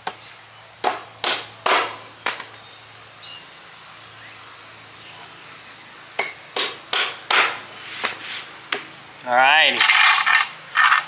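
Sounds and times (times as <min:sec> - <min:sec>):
hammer striking nail into wood: 0:00.8 - 0:02.0, 0:06.2 - 0:07.6.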